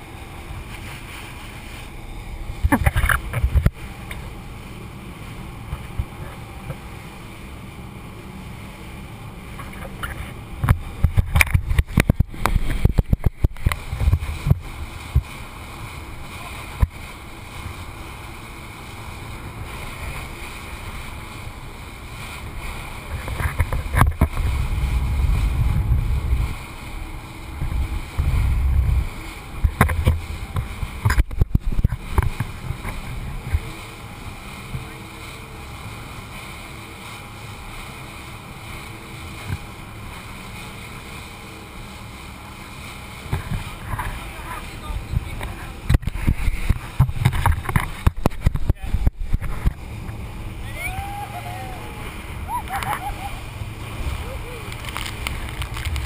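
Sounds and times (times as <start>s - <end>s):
boat slapping waves: 0.0s - 56.0s
muffled boat engine rumble: 0.0s - 56.0s
wind buffeting: 10.0s - 34.2s.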